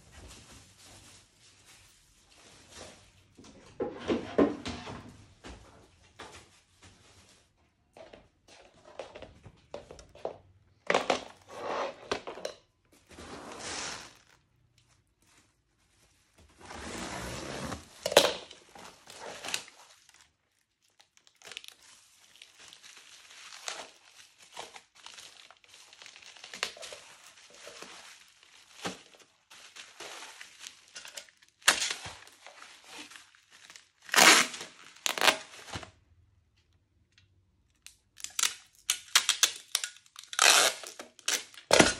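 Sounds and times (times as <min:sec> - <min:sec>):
plastic packaging crinkling and tearing: 0:13.6 - 0:16.8, 0:17.6 - 0:36.0, 0:37.7 - 0:41.9.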